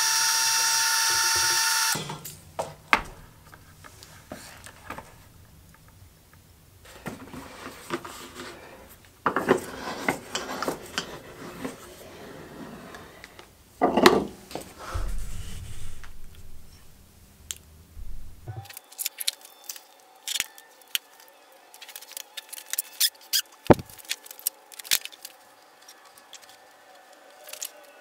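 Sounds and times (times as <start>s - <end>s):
dull thuds: 14.8s - 17.2s, 18.0s - 18.6s.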